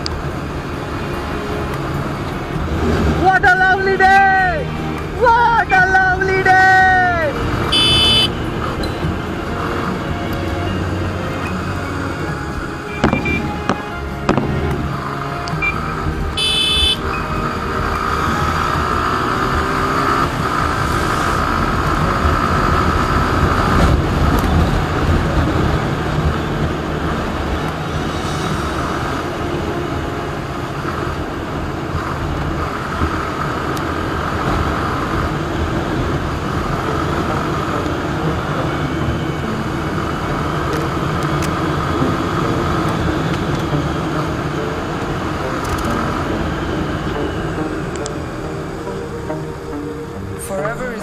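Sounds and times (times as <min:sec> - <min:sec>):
rushing wind noise: 0:00.0 - 0:51.0
motorcycle engine running: 0:07.2 - 0:10.0, 0:15.7 - 0:29.2, 0:30.8 - 0:49.1.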